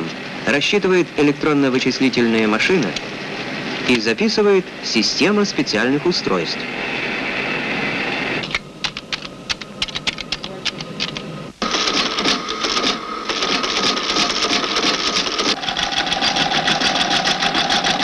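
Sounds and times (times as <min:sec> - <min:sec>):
keyboard key clacks: 0:08.4 - 0:11.3
machine mechanical clatter: 0:08.4 - 0:18.0
machine whine: 0:10.9 - 0:18.0.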